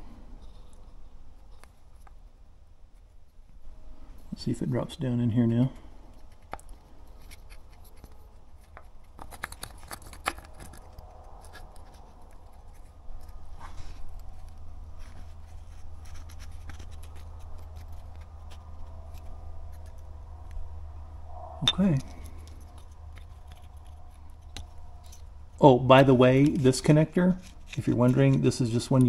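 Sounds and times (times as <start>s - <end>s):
low steady hum: 0.0s - 29.0s
plastic connector clicks and scrapes: 6.1s - 20.6s, 21.9s - 25.3s, 27.4s - 29.0s.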